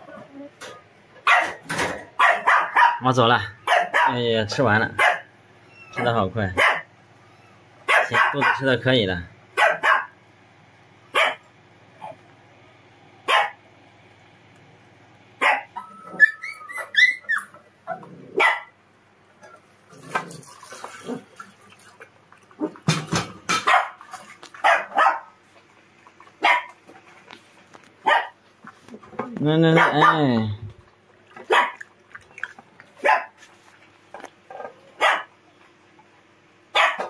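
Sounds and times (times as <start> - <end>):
dogs barking: 1.2 - 4.2, 5.0 - 6.9, 7.8 - 8.7, 9.5 - 10.2, 11.1 - 12.2, 13.2 - 13.6, 15.4 - 18.8, 22.6 - 25.5, 26.2 - 26.9, 28.0 - 30.4, 31.3 - 33.5, 34.5 - 35.4, 36.7 - 37.0
dogs whining: 5.6 - 8.1, 15.4 - 18.7.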